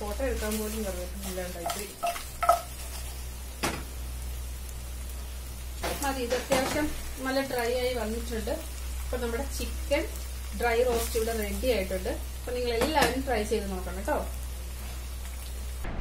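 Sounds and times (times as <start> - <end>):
chicken sizzling in a pot: 0.0 - 15.8
spoon scraping a pan: 1.2 - 3.3.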